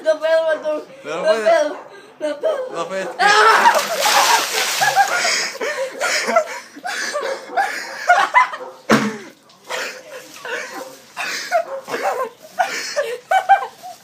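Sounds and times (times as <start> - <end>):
boys laughing: 1.6 - 14.0.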